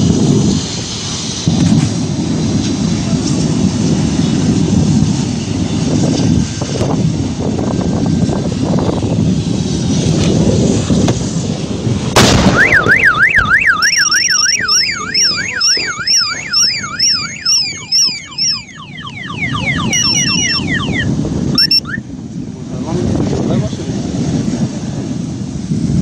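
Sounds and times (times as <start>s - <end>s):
gas cylinder explosion: 0.0s - 5.1s, 10.0s - 13.5s
traffic rumble: 0.0s - 26.0s
wind: 0.0s - 26.0s
car alarm: 12.4s - 22.0s.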